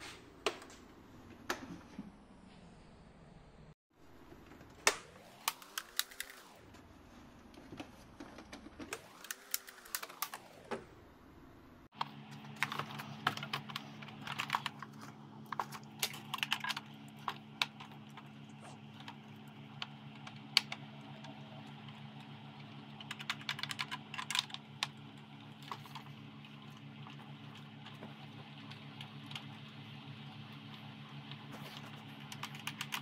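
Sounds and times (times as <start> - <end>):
steady low hum: 10.1 - 33.0.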